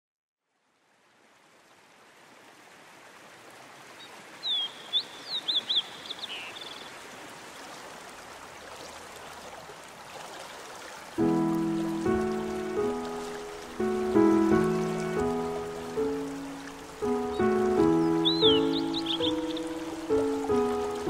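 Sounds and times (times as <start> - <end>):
flowing water hiss: 0.7 - 21.0
bird singing whistled notes: 4.4 - 6.9, 17.2 - 20.7.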